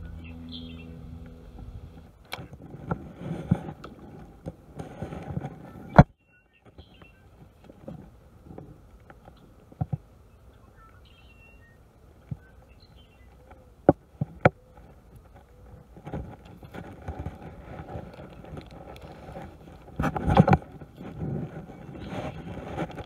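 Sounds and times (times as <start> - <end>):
faint bird chirps: 0.0 - 1.5, 5.8 - 7.4, 10.2 - 13.8
hand rubbing on camera: 1.1 - 6.0, 14.8 - 23.0.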